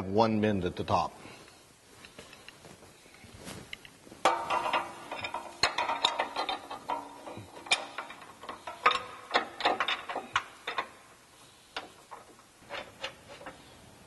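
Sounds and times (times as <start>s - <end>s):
metallic clicks of bolts and nuts: 4.2s - 13.7s.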